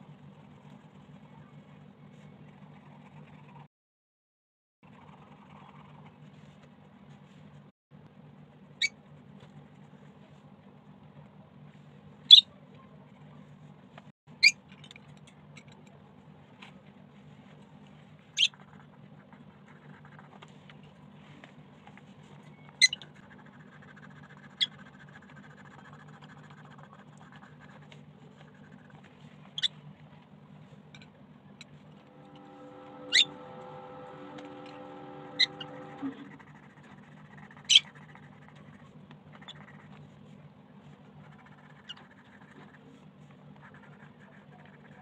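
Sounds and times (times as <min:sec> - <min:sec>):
steady low hum: 0:14.9 - 0:45.0
multi-tone hum: 0:15.6 - 0:45.0
high-pitched chirps: 0:32.1 - 0:36.3
pencil strokes on paper: 0:32.1 - 0:45.0.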